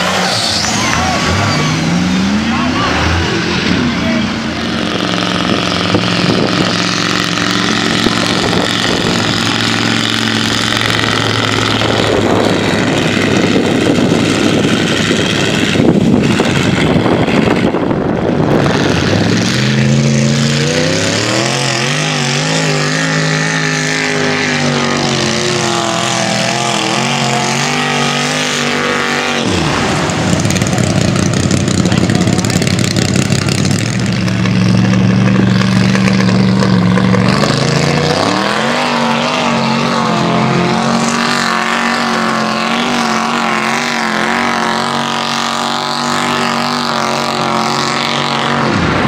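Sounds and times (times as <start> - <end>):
truck engines revving: 0.0 - 49.0
mud and water churning: 18.8 - 49.0.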